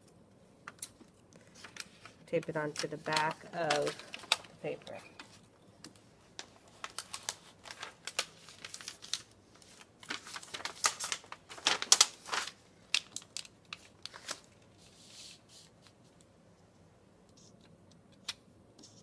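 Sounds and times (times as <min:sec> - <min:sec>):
aluminum sheet crinkling: 0:00.7 - 0:16.3
paper rustling: 0:01.4 - 0:05.5, 0:06.3 - 0:16.2.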